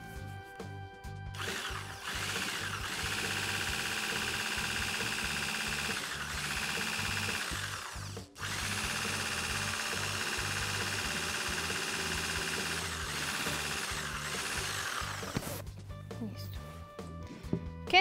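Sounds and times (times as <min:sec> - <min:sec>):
background music with steady beat: 0:00.0 - 0:18.0
electric blender whisking: 0:01.4 - 0:15.6.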